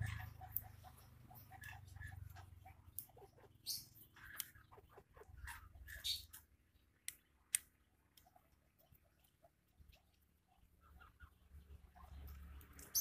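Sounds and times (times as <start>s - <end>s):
faint animal calls: 0.0s - 6.3s, 10.4s - 13.0s.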